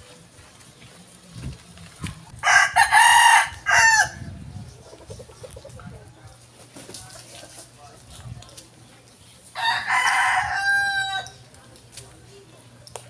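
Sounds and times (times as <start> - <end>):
rooster crowing: 2.4 - 4.3, 9.6 - 11.4.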